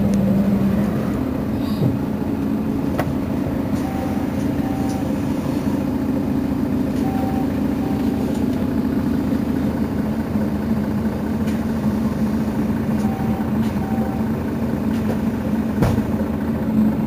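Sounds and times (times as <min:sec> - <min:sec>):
bus engine idling: 0:00.0 - 0:17.0
short faint beeps: 0:03.8 - 0:05.1, 0:07.0 - 0:08.3, 0:13.0 - 0:14.3.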